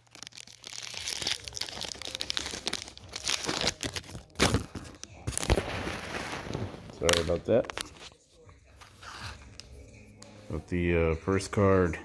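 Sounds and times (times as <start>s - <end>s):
wrapper crinkling and tearing: 0.0s - 8.2s.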